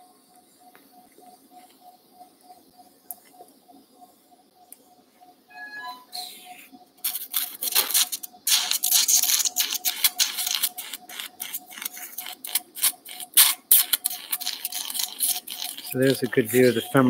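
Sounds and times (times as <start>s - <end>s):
suction tip hissing and sputtering: 7.0s - 17.0s.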